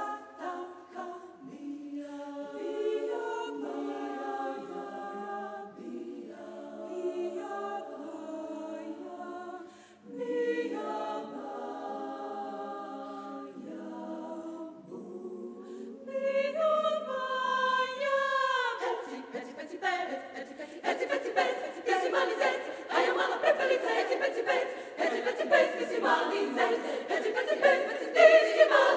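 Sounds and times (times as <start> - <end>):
women's choir singing a cappella: 0.0 - 28.9.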